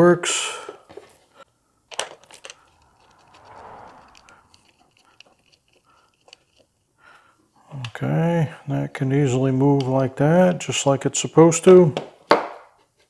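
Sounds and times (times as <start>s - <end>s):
soft scraping rustle: 2.2s - 6.7s.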